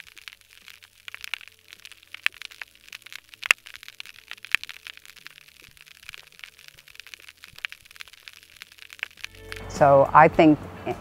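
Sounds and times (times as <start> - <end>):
snapping shrimp crackle underwater: 0.0 - 10.0.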